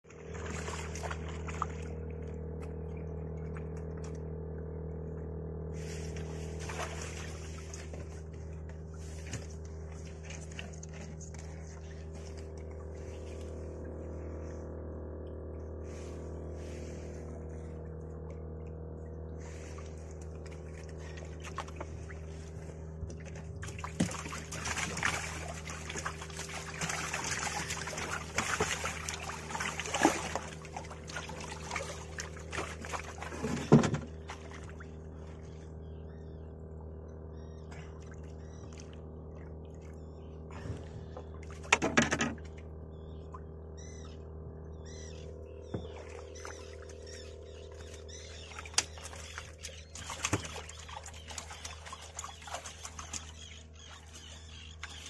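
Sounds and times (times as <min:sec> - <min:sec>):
water trickling and splashing: 0:00.0 - 0:04.7, 0:05.8 - 0:14.6, 0:19.4 - 0:35.8, 0:44.9 - 0:55.0
low motor hum: 0:00.0 - 0:55.0.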